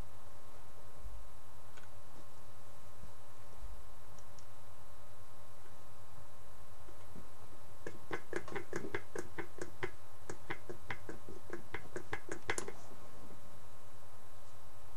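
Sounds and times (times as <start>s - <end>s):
dummy jaw clacking: 7.9s - 12.7s.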